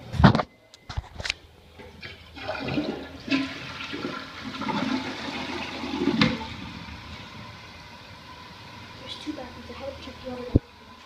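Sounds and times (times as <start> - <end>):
toilet flushing: 1.8 - 11.0.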